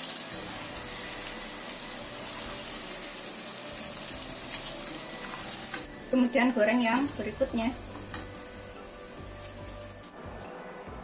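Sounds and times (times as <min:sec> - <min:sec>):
oil sizzling hiss: 0:00.0 - 0:10.4.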